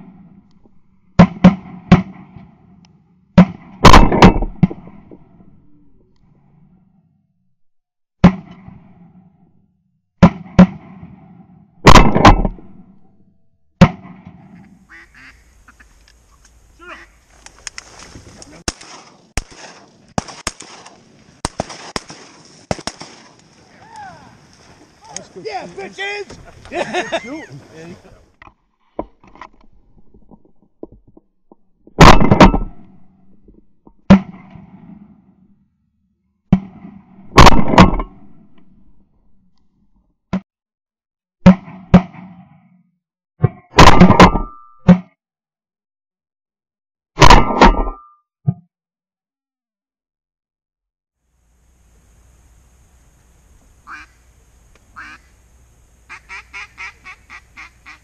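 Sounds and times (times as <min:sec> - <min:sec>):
shotgun blasts: 0:01.2 - 0:02.8, 0:03.4 - 0:05.2, 0:08.2 - 0:09.2, 0:10.2 - 0:12.9, 0:13.8 - 0:14.6, 0:18.6 - 0:23.4, 0:32.0 - 0:33.0, 0:34.1 - 0:35.1, 0:36.5 - 0:38.5, 0:41.4 - 0:42.6, 0:43.8 - 0:44.5, 0:47.2 - 0:47.9.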